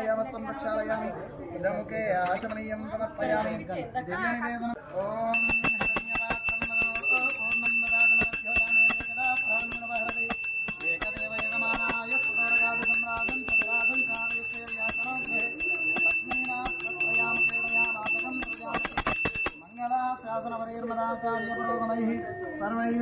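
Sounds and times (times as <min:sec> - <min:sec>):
hand bell rung rapidly: 0:05.3 - 0:20.4.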